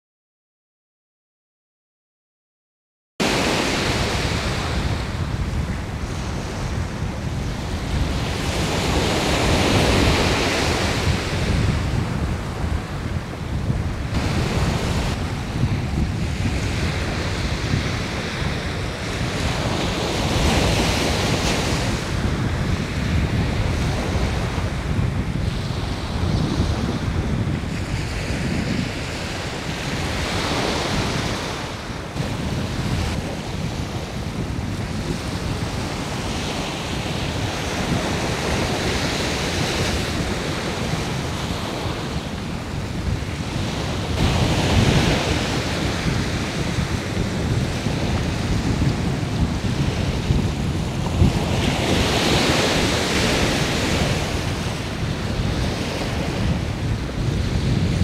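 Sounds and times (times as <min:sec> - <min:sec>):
sea waves washing in: 0:03.2 - 0:58.0
wind buffeting microphone: 0:03.2 - 0:58.0.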